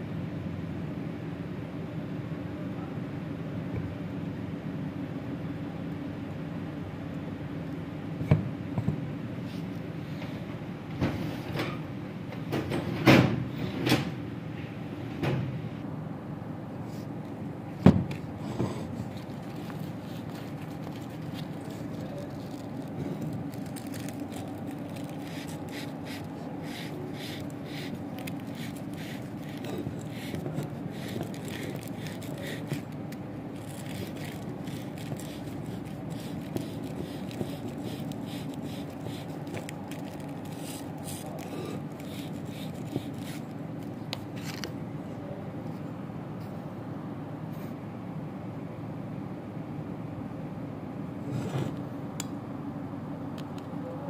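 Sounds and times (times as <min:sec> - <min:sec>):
low background hum: 0:00.0 - 0:54.0
faint scraping and handling: 0:18.3 - 0:33.0, 0:33.6 - 0:44.7.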